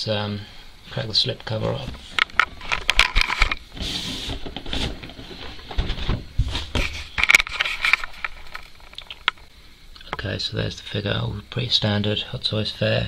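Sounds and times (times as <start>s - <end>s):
cardboard scraping and rustling: 1.6s - 8.7s.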